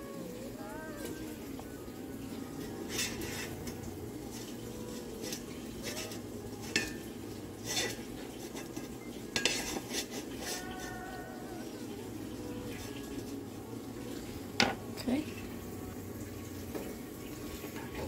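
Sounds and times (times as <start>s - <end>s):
spatula scraping a metal pan: 2.6s - 11.0s.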